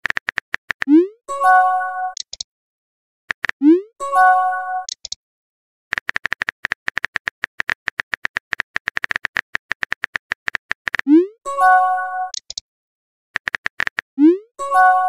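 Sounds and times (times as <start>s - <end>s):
rapid keyboard key clicks: 0.0s - 0.9s, 3.3s - 3.6s, 5.9s - 11.1s, 13.4s - 14.1s.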